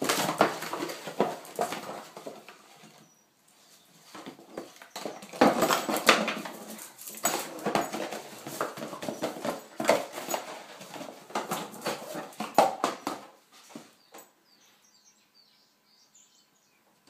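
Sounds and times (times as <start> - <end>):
dog tearing cardboard box: 0.0 - 2.4.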